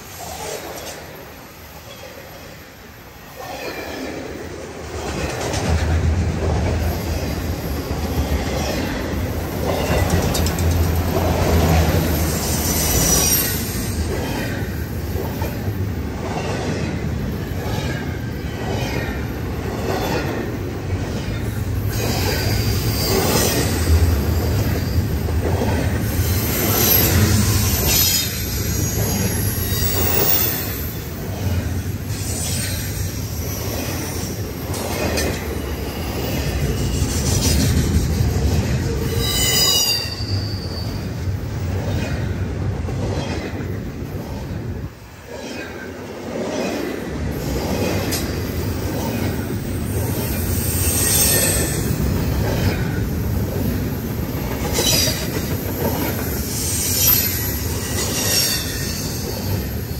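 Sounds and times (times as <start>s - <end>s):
freight train rumble: 0.0s - 59.9s
train wheels clacking on rail joints: 3.4s - 59.8s
high wheel squeal: 11.1s - 14.5s, 21.9s - 25.4s, 26.1s - 31.2s, 39.0s - 41.3s, 56.0s - 59.9s.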